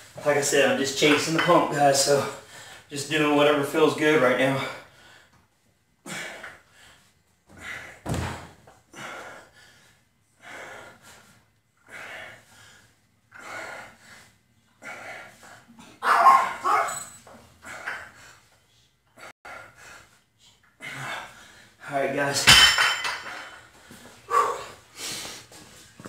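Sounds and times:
man breathing hard: 2.3s - 2.9s, 4.5s - 8.0s, 8.8s - 16.0s, 17.6s - 21.8s, 23.4s - 26.0s.

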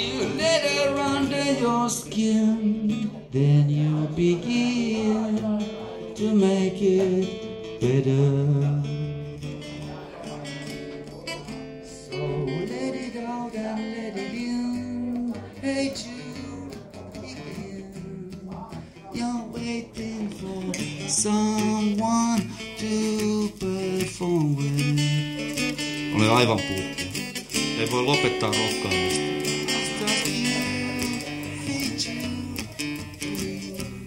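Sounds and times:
acoustic guitar strumming: 0.0s - 34.0s
person singing: 0.0s - 34.0s.

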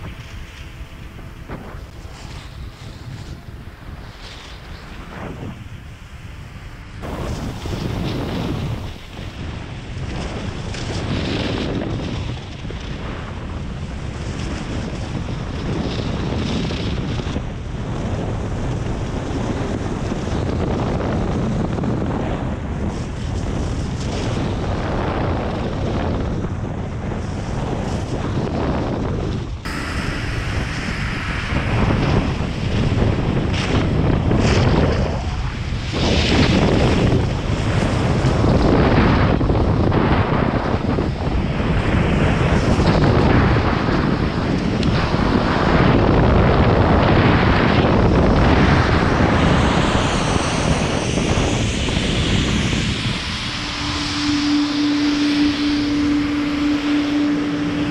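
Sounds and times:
wind rushing over microphone: 0.0s - 57.9s
skis hissing over snow: 7.0s - 9.3s.

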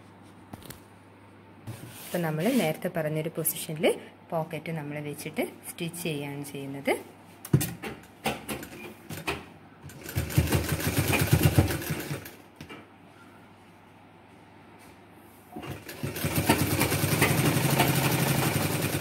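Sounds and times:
sewing machine stitching: 9.9s - 12.4s, 15.6s - 19.0s.

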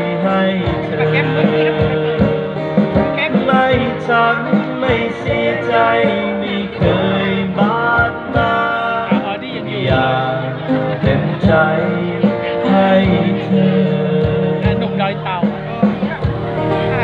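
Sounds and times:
man singing: 0.0s - 16.3s
strummed acoustic guitar: 0.0s - 17.0s.

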